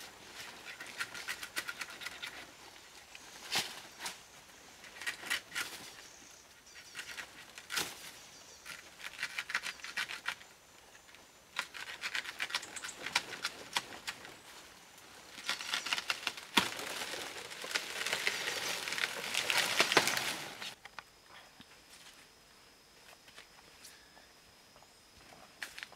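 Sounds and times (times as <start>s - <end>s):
dry leaves crackling and tearing: 15.2s - 20.8s
plant stalks snapping: 15.3s - 20.8s.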